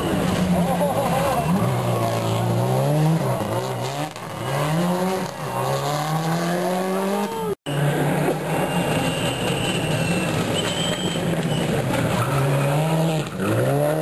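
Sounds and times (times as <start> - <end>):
rally car engine accelerating: 0.0 - 14.0.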